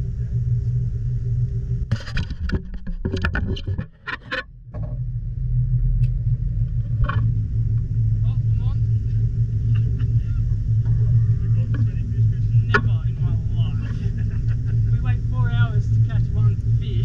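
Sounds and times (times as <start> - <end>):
boat motor humming: 0.0 - 17.0
sharp clicks and knocks: 1.9 - 5.0, 6.0 - 7.9, 11.6 - 13.2.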